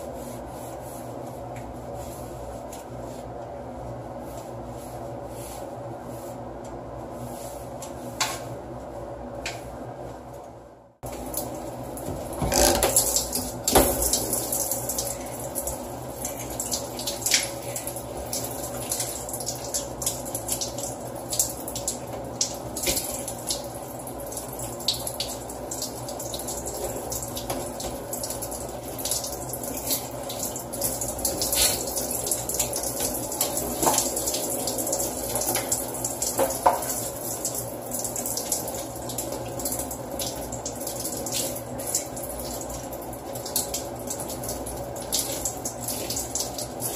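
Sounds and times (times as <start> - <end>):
shower head spraying water: 12.0 - 15.0.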